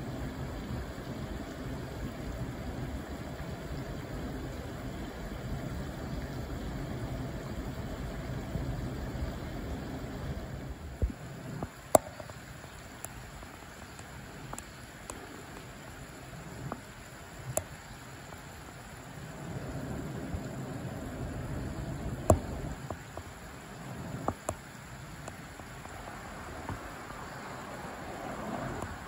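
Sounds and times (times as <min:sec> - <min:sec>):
low rumbling noise: 0:19.0 - 0:29.0.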